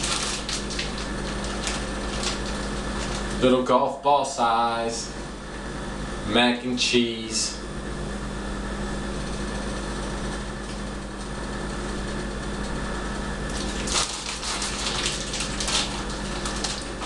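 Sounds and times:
plastic bag crinkling: 0.0s - 3.4s, 13.5s - 17.0s
steady hum: 0.0s - 17.0s.

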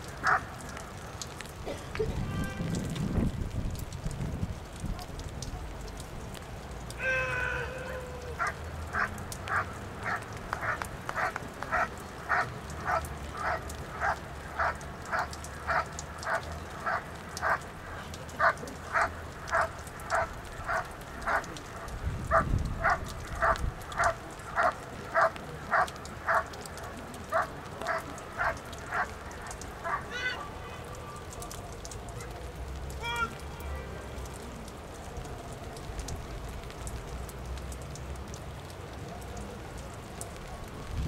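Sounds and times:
dog barking: 0.2s - 0.5s, 8.4s - 17.6s, 18.4s - 21.5s, 22.3s - 26.5s, 27.3s - 30.4s
person calling: 7.0s - 8.5s.

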